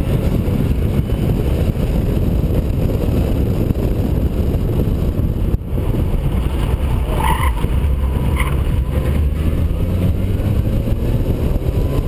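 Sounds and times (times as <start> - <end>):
car engine running: 0.0 - 12.0
road rumble: 0.0 - 12.0
wind noise: 0.0 - 12.0.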